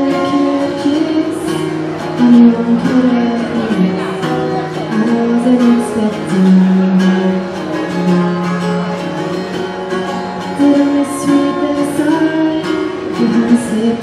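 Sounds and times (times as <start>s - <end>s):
woman singing long notes: 0.0s - 7.6s, 10.4s - 14.0s
acoustic guitar strumming: 0.0s - 14.0s.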